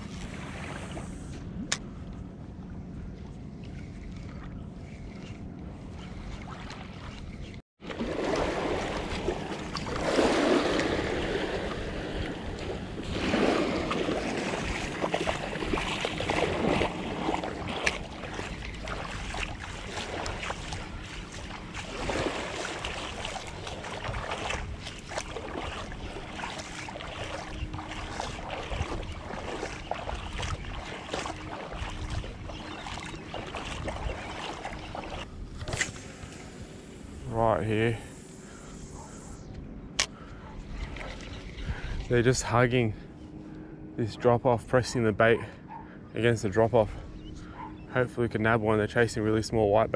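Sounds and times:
small waves lapping: 0.0s - 39.4s, 40.0s - 43.8s, 45.3s - 49.4s
wind buffeting microphone: 8.5s - 37.2s, 40.5s - 42.4s.

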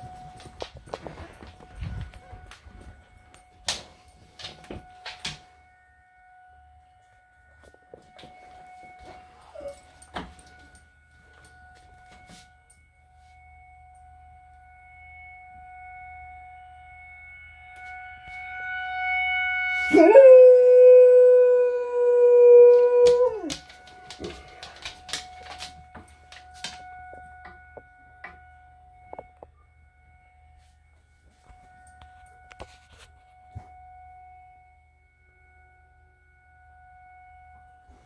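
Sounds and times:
distant tornado siren: 0.0s - 35.2s
dog howling: 9.1s - 10.0s, 19.9s - 23.8s.

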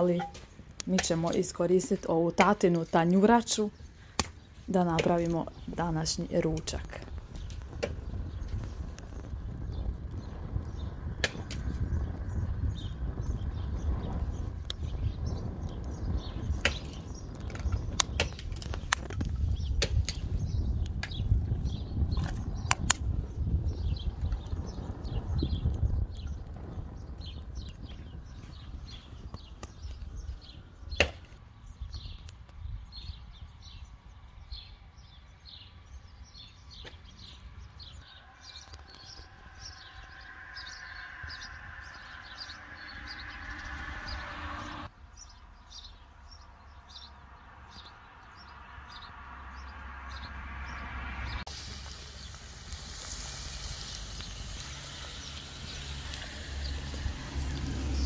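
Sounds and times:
small birds chirping: 0.0s - 58.0s
low rumble: 37.5s - 45.3s
food sizzling on a steel cooker: 51.5s - 58.0s.

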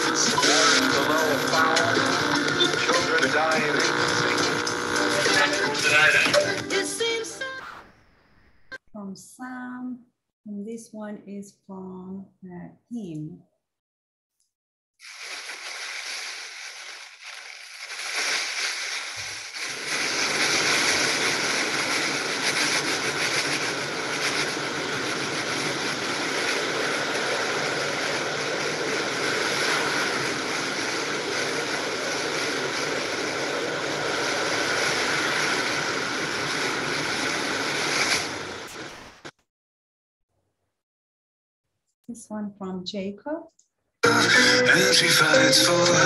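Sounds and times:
plastic bag crinkling: 15.0s - 25.4s.

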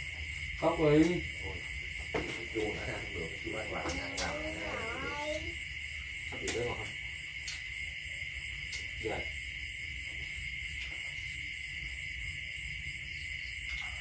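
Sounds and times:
night insects droning: 0.0s - 14.0s
people murmuring: 2.9s - 5.6s.

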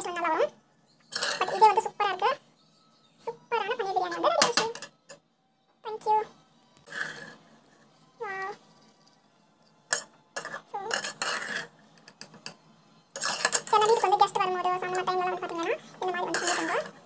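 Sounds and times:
metal ladle scraping a pot: 1.1s - 1.8s, 6.8s - 7.6s, 9.9s - 12.6s, 13.2s - 14.2s, 15.5s - 17.0s.

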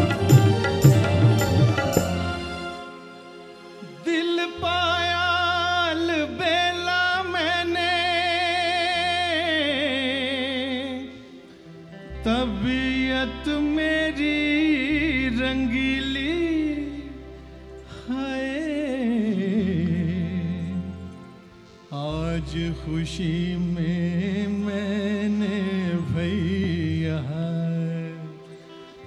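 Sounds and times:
bass: 0.0s - 2.9s, 4.4s - 28.4s
held keyboard chord: 0.0s - 4.2s
man singing wordless melody: 0.0s - 29.0s.

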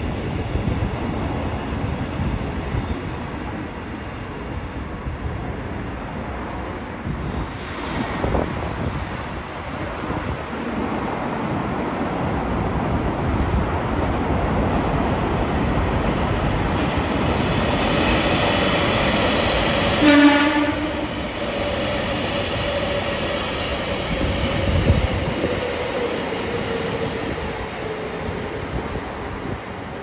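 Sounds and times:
electric train rumbling past: 0.0s - 30.0s
train horn blast: 19.9s - 21.2s.

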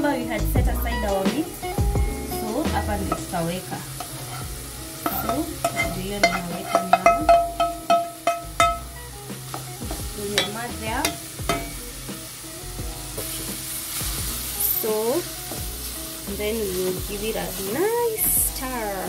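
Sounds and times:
meat sizzling: 0.0s - 19.0s
aluminium pot clanking: 2.8s - 12.0s
wooden spoon scraping a pot: 4.0s - 8.8s.

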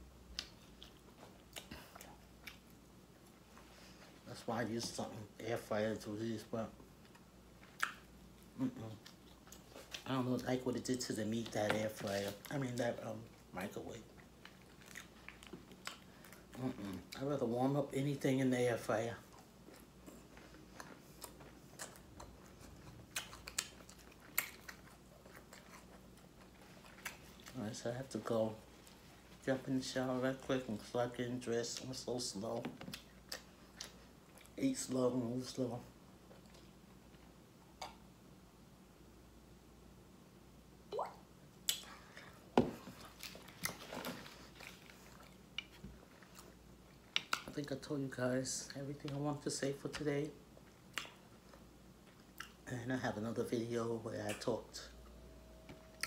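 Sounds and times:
person chewing food: 0.2s - 3.5s, 7.0s - 10.6s, 11.4s - 17.3s, 19.2s - 27.6s, 32.8s - 34.6s, 36.2s - 38.0s, 41.6s - 47.6s, 50.5s - 52.7s.

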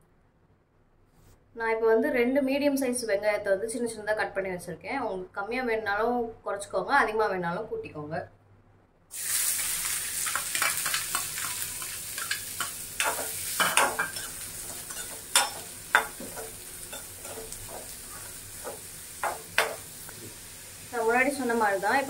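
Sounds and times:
onions sizzling in oil: 9.1s - 22.0s
metal spoon scraping pan: 9.6s - 19.9s.

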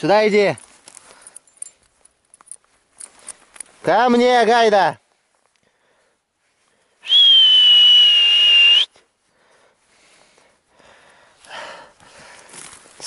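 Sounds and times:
long loud whistle: 7.0s - 9.0s.

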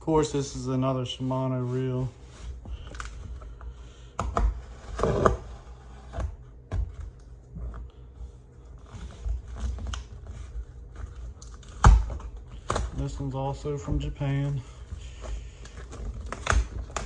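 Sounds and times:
tape and cardboard rustling: 0.1s - 17.0s
knife cutting packing tape: 15.2s - 17.0s.

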